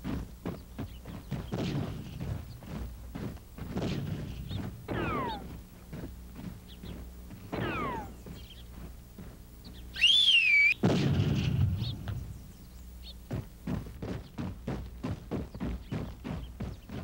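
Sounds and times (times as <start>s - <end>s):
high wavering whistle: 10.0s - 10.8s
gunshot blast: 10.8s - 12.2s.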